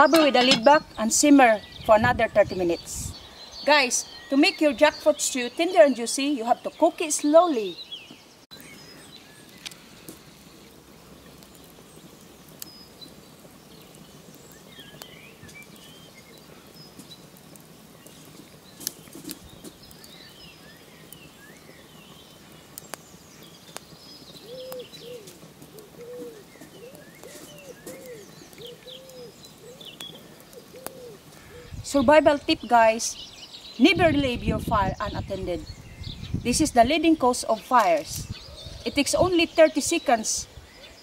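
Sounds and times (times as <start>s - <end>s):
small birds chirping: 0.0s - 41.0s
faint sharp clicks: 22.8s - 23.1s, 24.5s - 24.9s
dove cooing: 24.4s - 31.8s.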